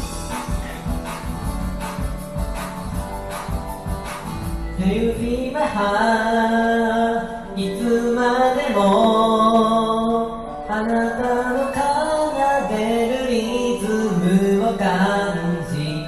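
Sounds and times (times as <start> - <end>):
pop drum beat and bass: 0.0 - 5.8.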